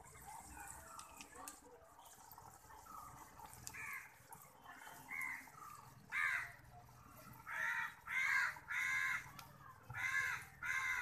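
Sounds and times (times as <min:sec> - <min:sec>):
crow cawing: 0:06.1 - 0:06.6, 0:07.5 - 0:09.3, 0:10.0 - 0:11.0.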